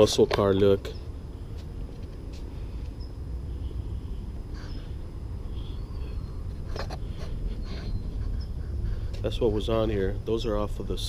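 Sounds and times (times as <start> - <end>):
low rumble: 0.9 - 11.0
faint high chirps: 2.9 - 6.6.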